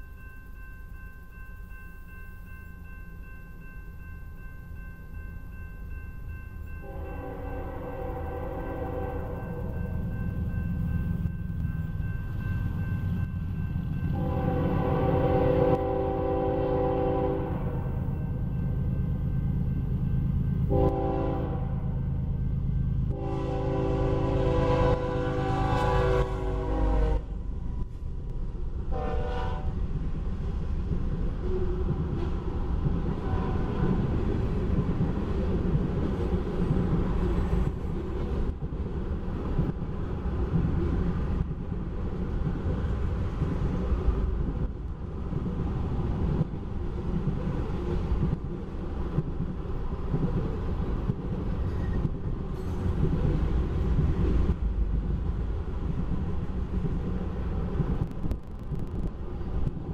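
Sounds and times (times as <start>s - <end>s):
freight train wheels rumbling on rails: 0.0s - 59.9s
locomotive horn blast: 6.8s - 9.4s, 14.2s - 17.7s, 20.7s - 21.8s, 23.1s - 27.4s, 28.9s - 29.8s.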